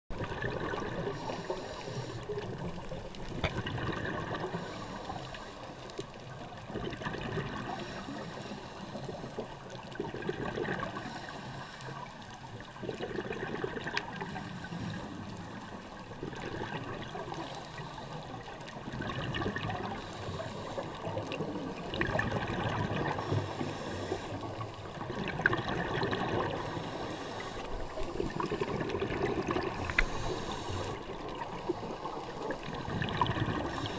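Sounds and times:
diver exhaled bubbles gurgling: 0.1s - 5.2s, 6.3s - 8.3s, 9.0s - 11.3s, 12.6s - 33.9s
watery rush: 12.6s - 33.9s.

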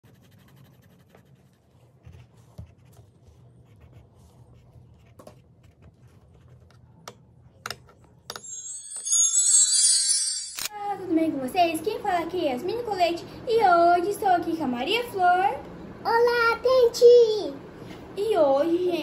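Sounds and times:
colouring tip scratching on paper: 0.0s - 7.0s.

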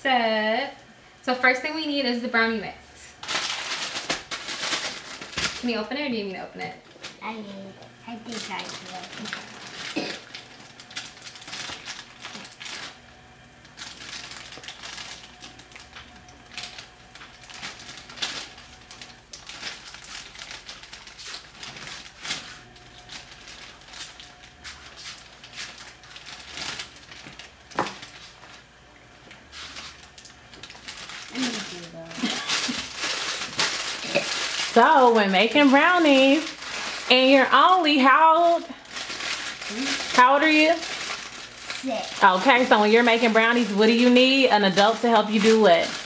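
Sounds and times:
plastic bag crinkling: 3.1s - 46.0s.

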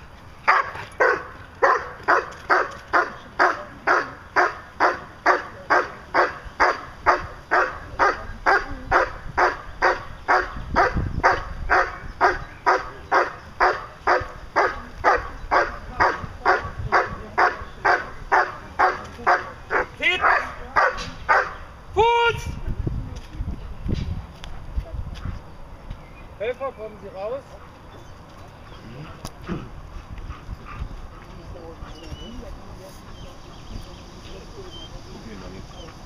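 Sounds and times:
dog barking rhythmically: 0.5s - 21.6s.

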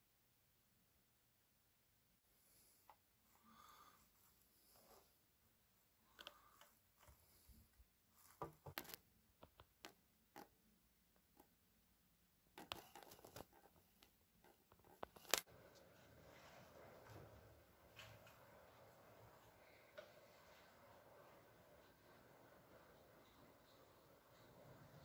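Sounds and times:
small clicks and taps: 8.4s - 10.6s.

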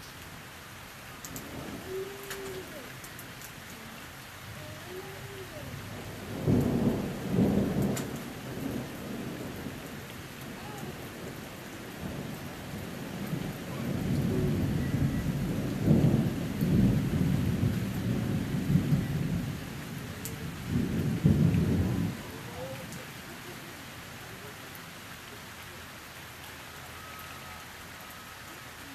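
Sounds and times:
thunder rumbling: 5.5s - 23.0s.

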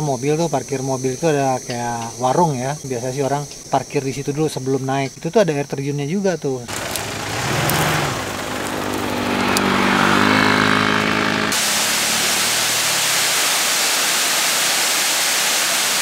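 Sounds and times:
vehicle engine humming: 6.7s - 14.9s
waterfall rushing: 6.7s - 16.0s.

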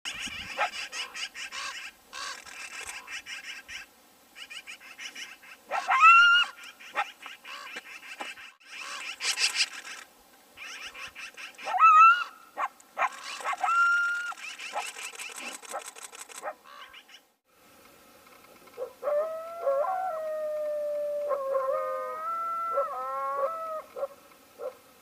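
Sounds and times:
coyote howling: 5.7s - 6.6s, 11.6s - 14.8s, 18.9s - 24.8s
high yips and squeaks: 10.6s - 12.4s, 13.0s - 16.5s.

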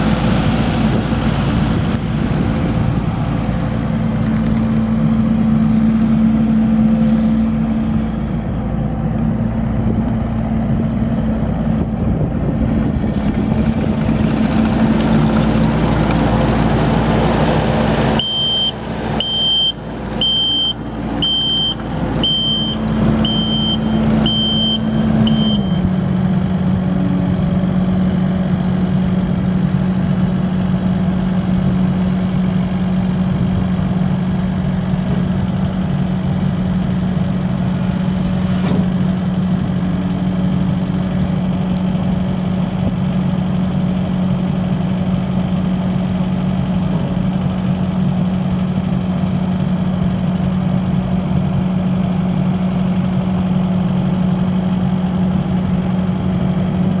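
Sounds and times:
diesel engine running: 0.0s - 57.0s
backup alarm beeping: 18.2s - 25.9s.

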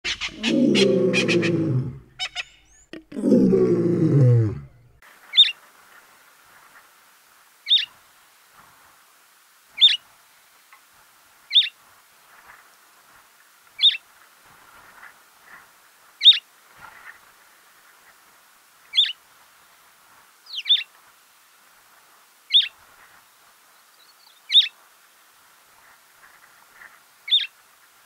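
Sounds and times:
deep drawn-out bird calls: 0.0s - 5.5s.

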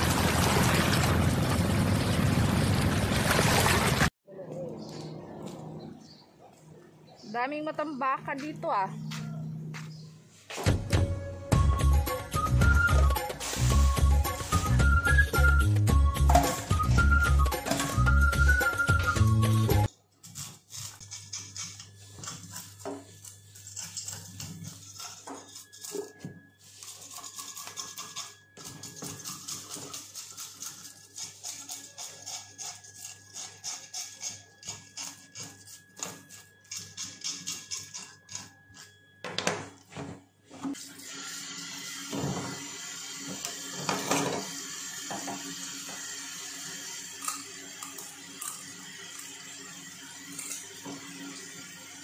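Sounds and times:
knife scraping fish scales: 20.2s - 39.0s.

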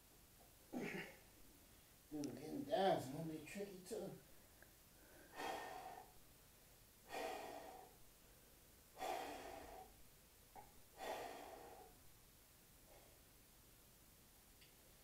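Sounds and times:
man breathing hard: 4.3s - 6.2s, 7.0s - 8.1s, 8.9s - 12.1s
man exhaling forcefully: 5.2s - 6.2s, 7.1s - 8.0s, 9.0s - 10.0s, 11.0s - 12.0s.

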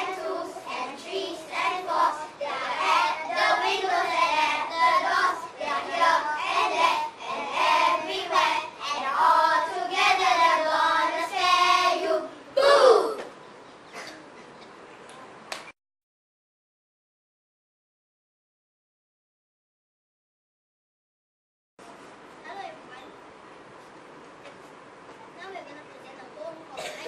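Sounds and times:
children chanting a verse: 0.0s - 13.2s
loud short rising cry: 12.6s - 13.3s.

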